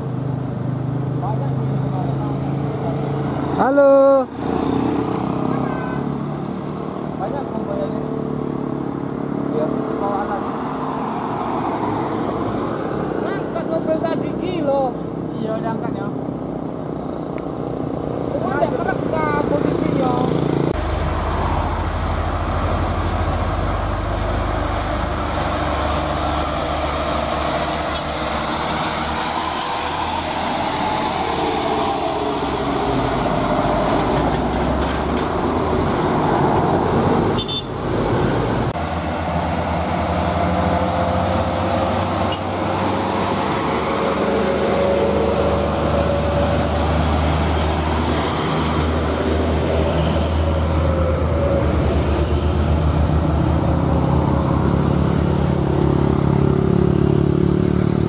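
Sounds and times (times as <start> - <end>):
diesel trucks engine drone: 15.9 - 58.0.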